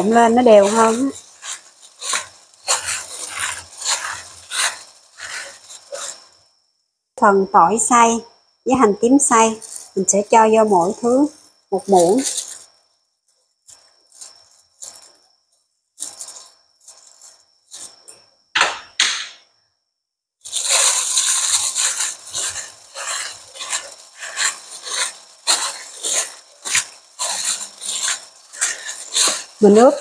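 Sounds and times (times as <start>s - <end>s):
plastic glove rustling and squishing: 0.0s - 6.4s, 9.4s - 12.8s, 13.6s - 15.2s, 16.0s - 18.0s, 20.4s - 30.0s.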